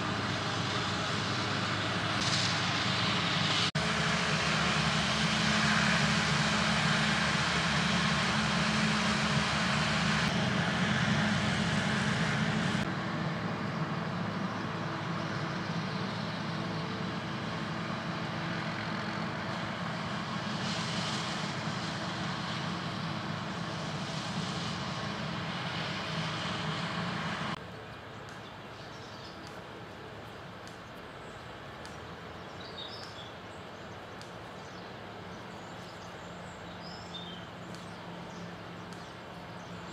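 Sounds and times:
forage harvester chopping: 0.0 - 12.8, 37.2 - 39.9
distant machine noise: 0.0 - 39.9
tractor pulling trailer: 0.0 - 39.9.

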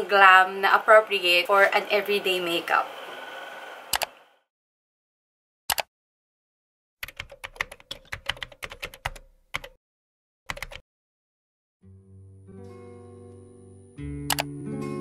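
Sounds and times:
keyboard typing: 3.9 - 4.1, 7.0 - 9.8, 10.5 - 10.8, 14.3 - 14.5.

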